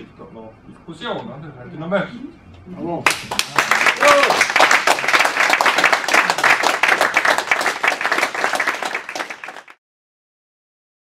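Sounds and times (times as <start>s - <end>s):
audience applauding: 3.1s - 9.8s.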